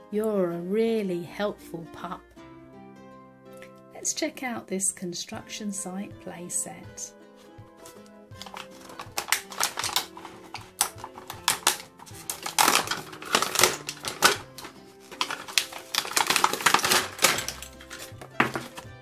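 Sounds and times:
background music: 0.0s - 19.0s
plastic packaging crackling: 7.8s - 19.0s.

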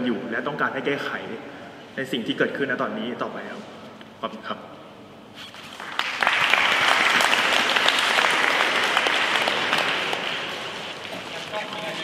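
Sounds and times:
audience applauding: 5.7s - 12.0s.

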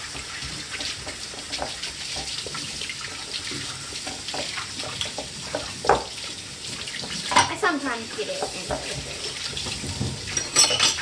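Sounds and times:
slime being stirred: 0.0s - 10.0s.

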